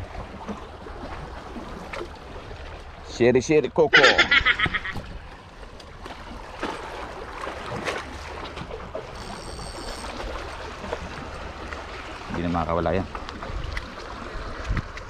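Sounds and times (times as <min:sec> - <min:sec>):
seawater splashing against rocks: 0:03.9 - 0:15.0.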